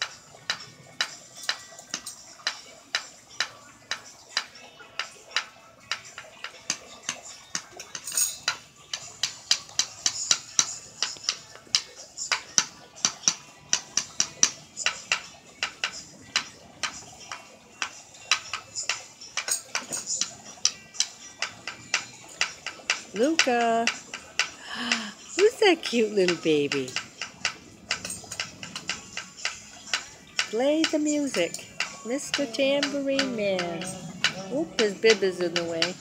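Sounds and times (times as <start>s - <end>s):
tambourine jingles jangling: 8.1s - 8.4s.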